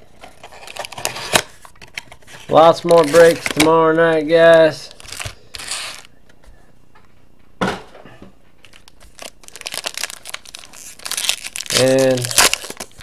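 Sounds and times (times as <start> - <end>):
foil packs crinkling: 2.5 - 6.1, 8.6 - 13.0.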